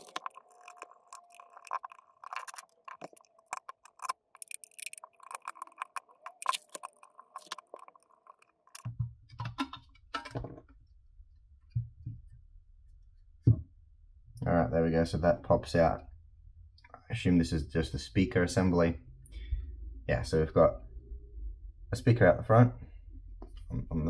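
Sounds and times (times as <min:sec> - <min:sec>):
plastic parts handled: 0:00.0 - 0:10.6.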